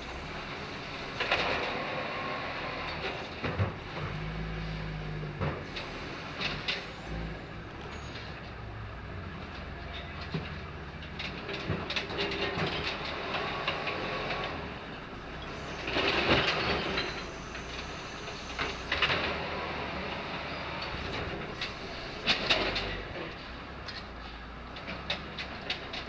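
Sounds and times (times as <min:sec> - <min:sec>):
garbage truck diesel engine running: 0:00.0 - 0:26.0
truck body rattling and clanking: 0:09.4 - 0:26.0.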